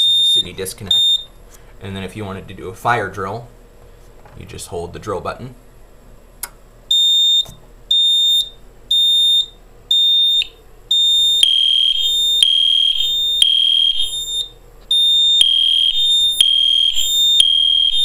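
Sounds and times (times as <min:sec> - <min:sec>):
high-pitched alarm horn beeps: 0:00.0 - 0:01.3, 0:06.9 - 0:18.0
lower alarm tone: 0:00.0 - 0:01.3, 0:06.9 - 0:18.0.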